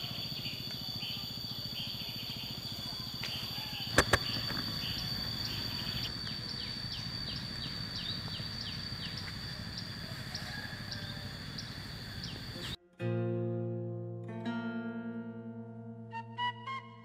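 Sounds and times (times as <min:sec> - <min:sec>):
insects droning: 0:00.0 - 0:12.8
sharp clicks: 0:03.2 - 0:06.6.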